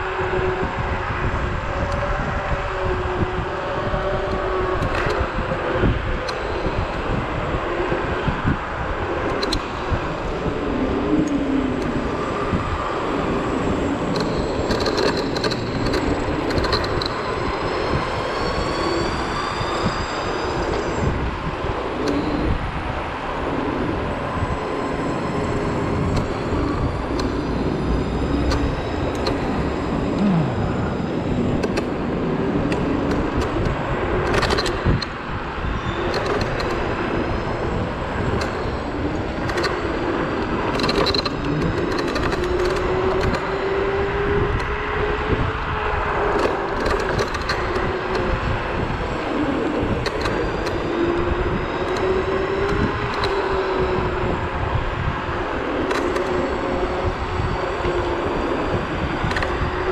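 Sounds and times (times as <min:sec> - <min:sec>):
faint high whine: 0:00.0 - 0:34.2
wind rushing over microphone: 0:00.0 - 0:59.9.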